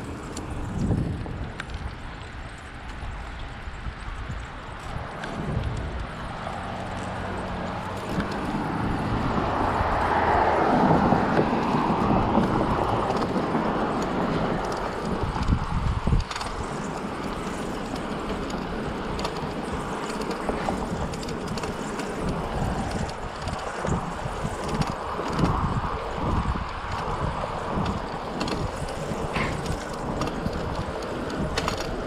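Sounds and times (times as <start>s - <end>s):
bicycle tyre and wind noise: 0.0s - 32.0s
car passing: 0.0s - 32.0s.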